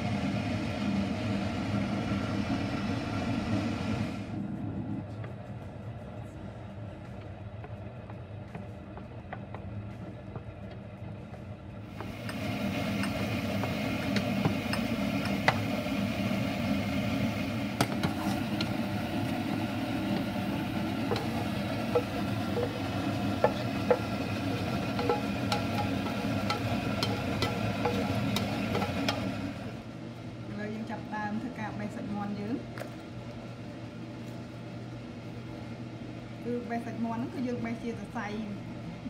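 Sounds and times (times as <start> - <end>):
garlic sizzling in oil: 11.9 - 29.8.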